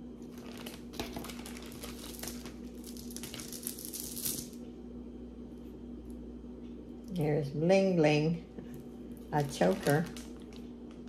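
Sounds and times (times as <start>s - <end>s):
faint steady hum: 0.0s - 11.0s
wrapping crinkling: 0.2s - 4.6s, 9.2s - 11.0s.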